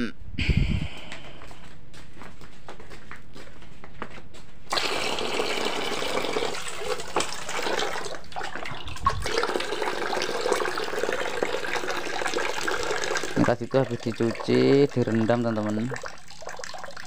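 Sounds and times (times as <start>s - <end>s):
water pouring and splashing: 4.7s - 17.0s.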